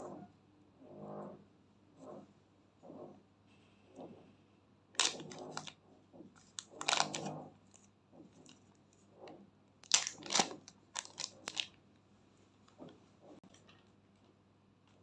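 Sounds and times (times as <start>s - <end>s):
plastic bag crinkling: 5.0s - 5.7s, 6.5s - 7.8s, 9.8s - 11.8s.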